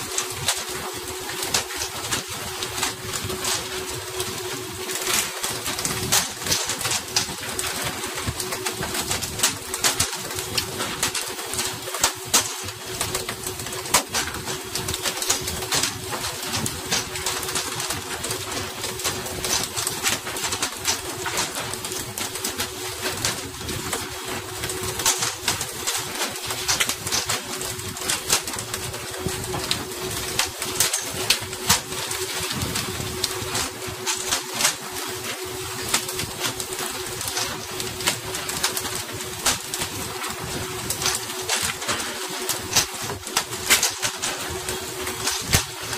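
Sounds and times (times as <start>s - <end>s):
low mechanical hum: 0.0s - 45.9s.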